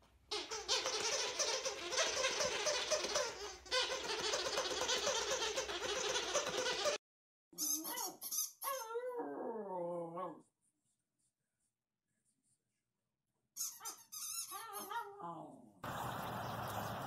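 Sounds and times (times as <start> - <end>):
puppy whining: 0.3 - 7.0, 7.6 - 10.5, 13.6 - 15.6
puppy yipping: 7.6 - 9.2, 13.6 - 15.4.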